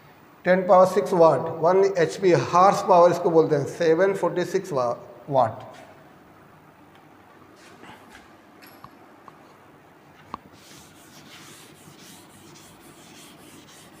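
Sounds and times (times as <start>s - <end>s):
duster wiping a chalkboard: 10.5s - 14.0s.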